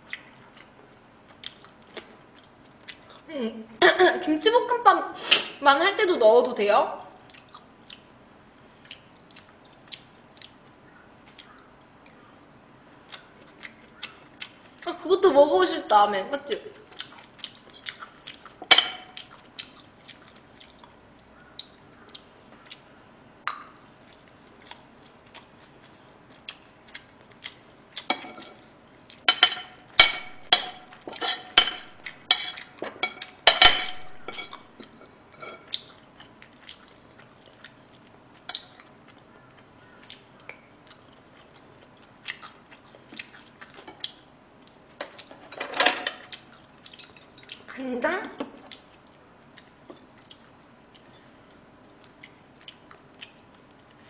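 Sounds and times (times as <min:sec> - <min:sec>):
spoon clinking on ceramic plate: 0:18.7 - 0:19.2, 0:29.3 - 0:34.6.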